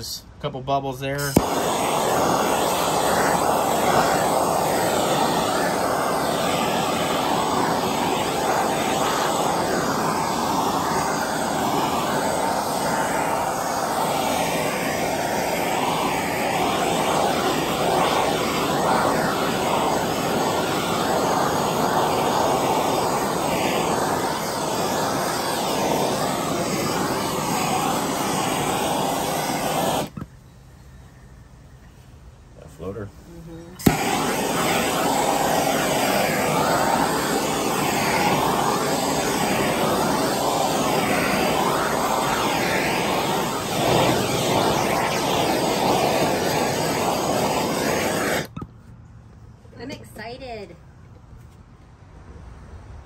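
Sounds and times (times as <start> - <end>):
heat gun blowing air: 1.2 - 30.3, 33.8 - 48.6.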